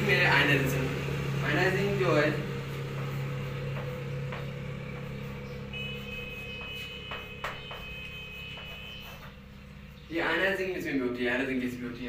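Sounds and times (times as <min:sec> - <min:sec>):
chalk tapping and scraping on blackboard: 0:02.6 - 0:09.6.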